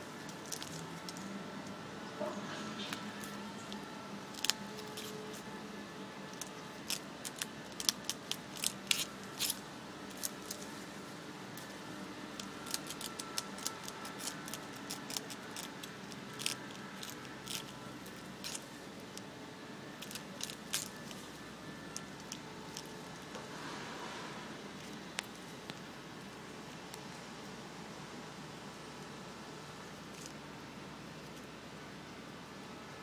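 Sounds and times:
squirrel gnawing branch: 0:00.0 - 0:27.9, 0:28.9 - 0:31.8.

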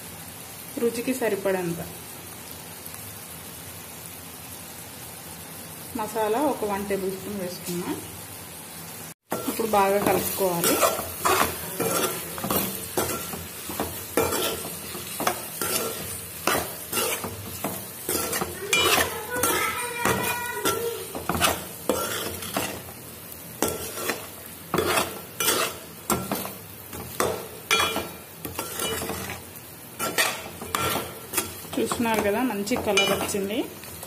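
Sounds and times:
chicken sizzling: 0:00.0 - 0:34.0
metal spatula scraping pan: 0:09.3 - 0:22.9, 0:23.6 - 0:29.4, 0:30.0 - 0:33.4.

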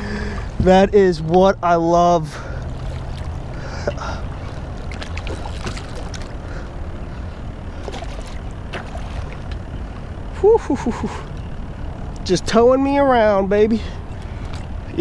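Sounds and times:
steady low rumble: 0:00.0 - 0:15.0
fish splashing in water: 0:02.7 - 0:06.6, 0:07.8 - 0:09.6.

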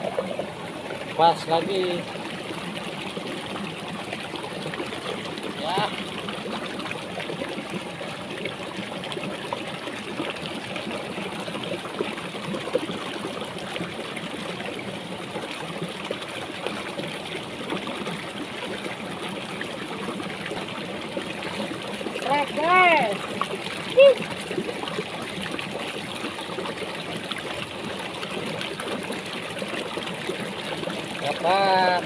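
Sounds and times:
stream trickling over stones: 0:00.0 - 0:32.0.

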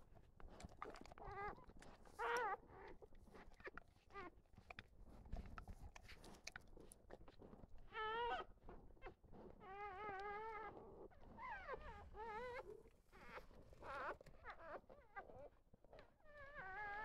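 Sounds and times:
puppies whining: 0:11.4 - 0:15.6.

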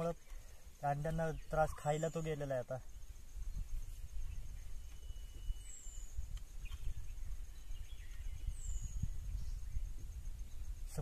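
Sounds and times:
wind buffeting microphone: 0:02.9 - 0:11.0
faint bird whistles: 0:03.5 - 0:10.8.

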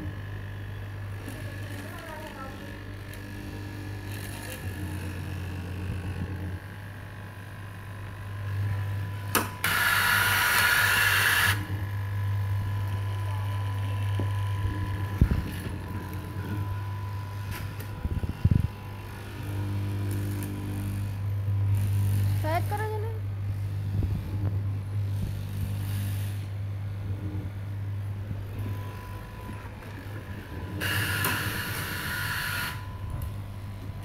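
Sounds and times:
cloth cutting machine humming: 0:00.0 - 0:34.0.

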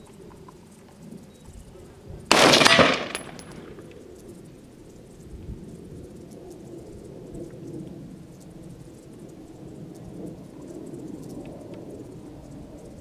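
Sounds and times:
rifle shot: 0:02.3 - 0:03.9.

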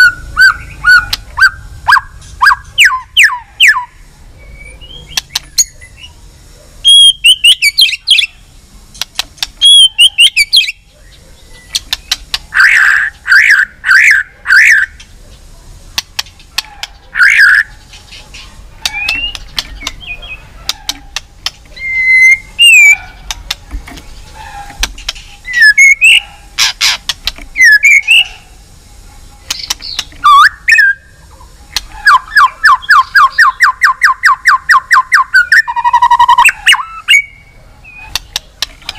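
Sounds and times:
bird singing whistled phrases: 0:00.0 - 0:06.2, 0:06.8 - 0:08.4, 0:09.6 - 0:10.8, 0:11.6 - 0:15.0, 0:17.2 - 0:17.7, 0:18.8 - 0:20.4, 0:21.8 - 0:23.1, 0:25.4 - 0:26.2, 0:27.6 - 0:28.4, 0:29.5 - 0:31.2, 0:32.0 - 0:38.2
bird sharp clicks: 0:00.4 - 0:01.5, 0:05.0 - 0:05.8, 0:08.9 - 0:10.8, 0:11.6 - 0:13.6, 0:15.9 - 0:28.3, 0:29.4 - 0:30.9, 0:31.7 - 0:35.6, 0:37.9 - 0:38.9.

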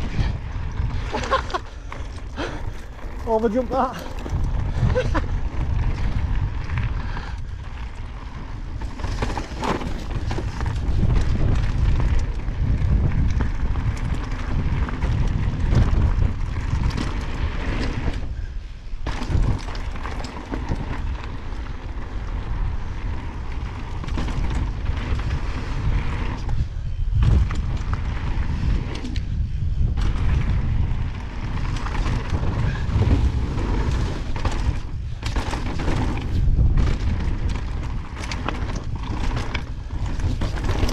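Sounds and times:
bike rattling: 0:00.0 - 0:40.9
wind buffeting on microphone: 0:00.0 - 0:40.9
tyres crunching over stones: 0:01.1 - 0:05.1.

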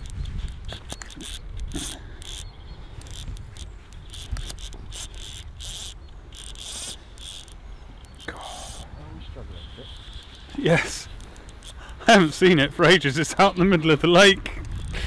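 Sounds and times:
fly reel buzzing: 0:00.0 - 0:09.0, 0:09.6 - 0:12.6.

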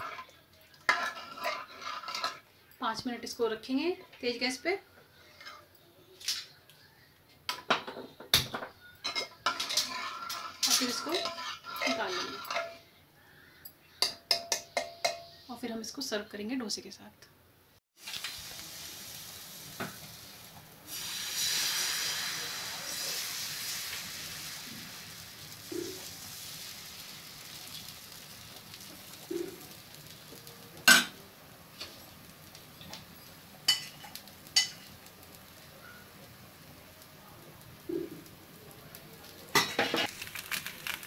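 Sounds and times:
batter sizzling on hot griddle: 0:00.0 - 0:02.4, 0:09.4 - 0:12.8, 0:18.0 - 0:41.0.

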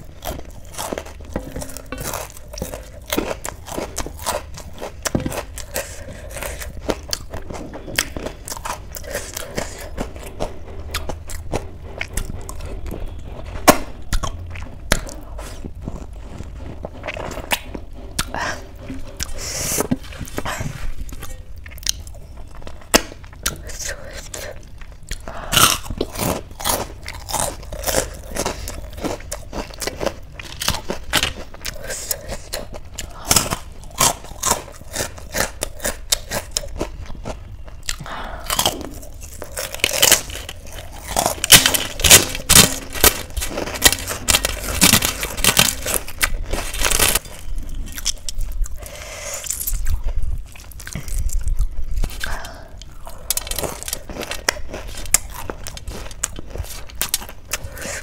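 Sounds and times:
crisp cracker crunching: 0:00.0 - 0:19.4, 0:20.0 - 0:58.0.

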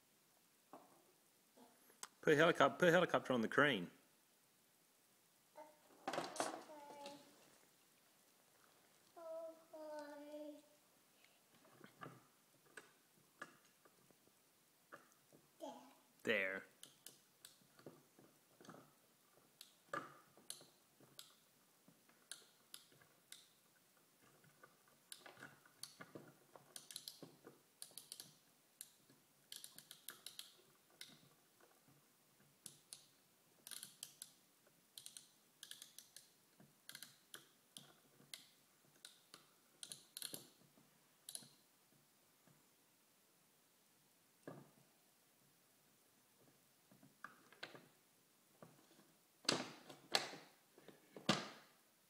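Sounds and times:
toy pieces clicking and tapping: 0:25.1 - 0:31.3, 0:32.6 - 0:34.4, 0:35.0 - 0:40.6.

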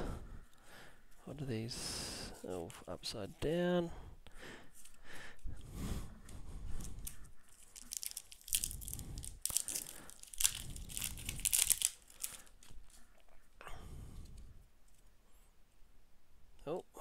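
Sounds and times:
cards being handled: 0:06.8 - 0:13.0
foil pack crinkling and tearing: 0:07.0 - 0:12.7.

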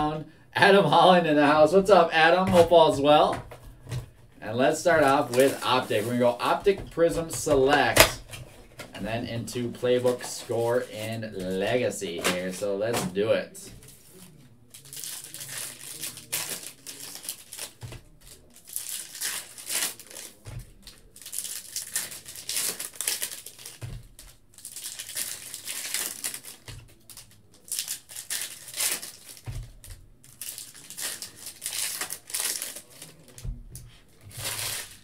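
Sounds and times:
cards being handled: 0:02.5 - 0:13.1, 0:13.8 - 0:35.0
foil wrappers crinkling and tearing: 0:04.5 - 0:06.8, 0:13.8 - 0:35.0.

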